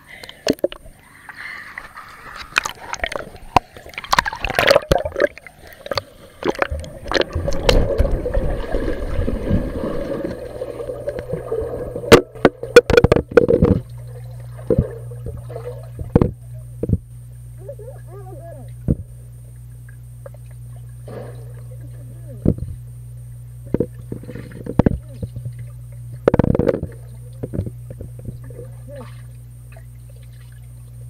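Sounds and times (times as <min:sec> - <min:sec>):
steady low hum: 0:00.0 - 0:31.0
gurgling churning water: 0:01.7 - 0:16.5.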